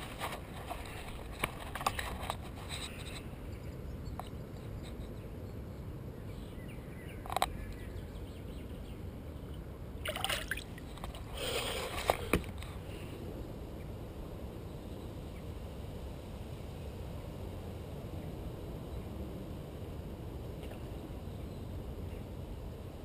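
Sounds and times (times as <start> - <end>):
water sloshing and splashing: 10.0 - 12.5.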